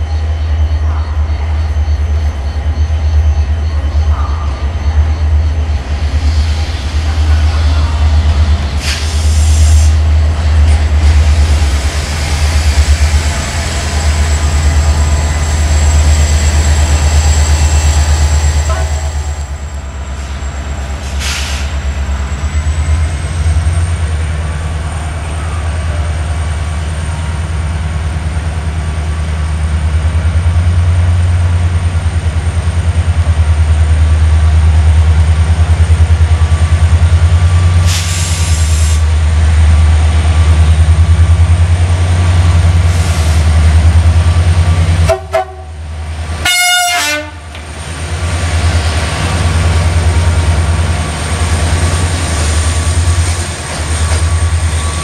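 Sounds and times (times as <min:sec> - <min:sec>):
diesel locomotive engine hum: 0:00.0 - 0:55.0
air hissing: 0:08.7 - 0:10.1, 0:21.0 - 0:21.8, 0:37.8 - 0:39.1
train horn toot: 0:18.6 - 0:19.3, 0:45.0 - 0:45.8, 0:46.4 - 0:47.6.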